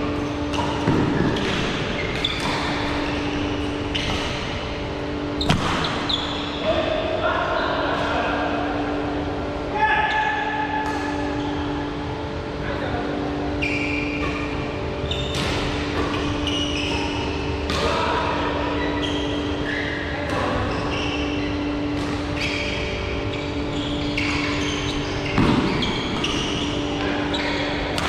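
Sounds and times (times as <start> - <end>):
shoes squeaking on floor: 0.2 - 6.8, 13.5 - 15.4, 16.1 - 17.6, 18.7 - 28.0
rackets hitting shuttlecock: 0.5 - 4.8, 5.4 - 6.1.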